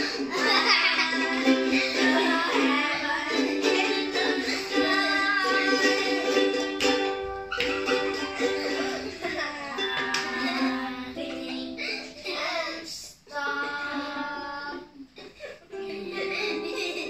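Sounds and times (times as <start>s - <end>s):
children singing: 0.0s - 17.0s
ukuleles strumming chords: 0.0s - 17.0s.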